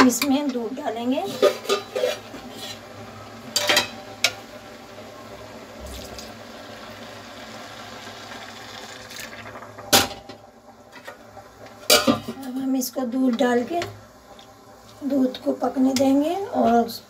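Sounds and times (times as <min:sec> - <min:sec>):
milk pouring splash: 0:05.8 - 0:06.4.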